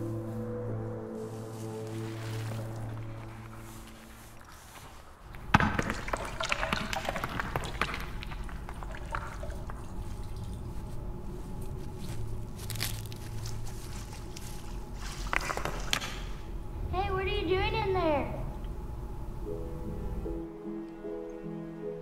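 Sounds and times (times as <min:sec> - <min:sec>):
dry leaves crackling: 0:00.0 - 0:05.3, 0:10.7 - 0:15.7
water trickling and dripping: 0:06.0 - 0:11.6.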